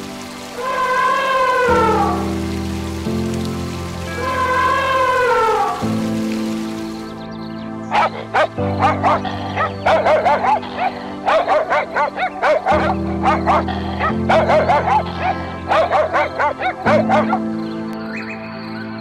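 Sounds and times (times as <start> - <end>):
background music with low chords: 0.0 - 19.0
animal yipping: 7.9 - 17.4.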